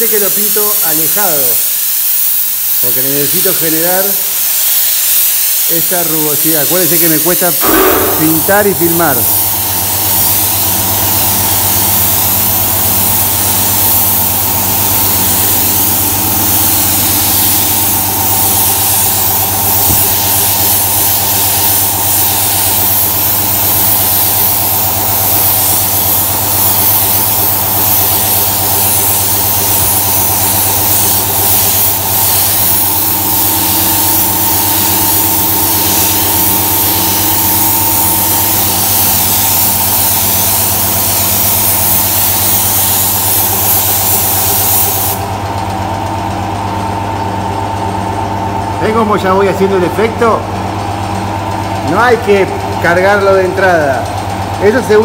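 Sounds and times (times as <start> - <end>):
spray gun hissing: 0.1 - 45.2
air compressor humming: 3.0 - 55.0.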